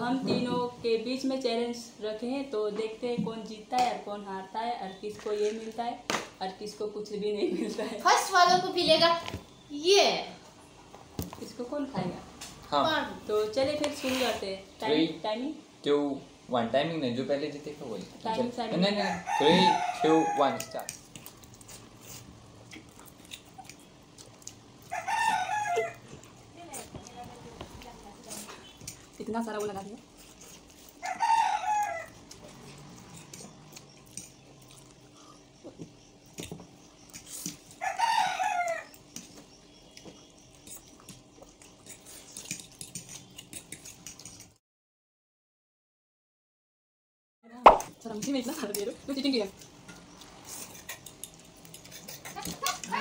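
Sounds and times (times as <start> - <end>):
chewing and slurping noodles: 20.9 - 31.1, 31.8 - 38.0, 38.6 - 44.6, 49.6 - 52.9
forks clicking against plates: 41.6 - 44.5
mouth clicks and smacks: 47.6 - 48.0.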